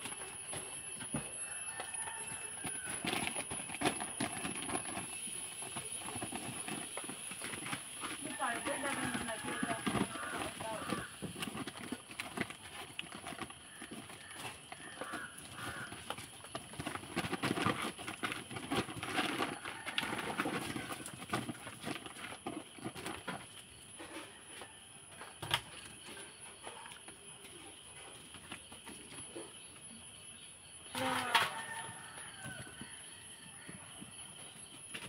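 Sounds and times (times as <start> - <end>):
puppy paws scuffling: 0.2 - 24.2
paper rustling and crinkling: 5.8 - 23.3.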